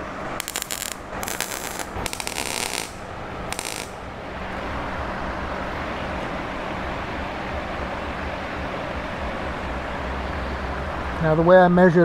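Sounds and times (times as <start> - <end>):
welding arc crackling: 0.0 - 4.1
steady low hum: 0.0 - 11.4.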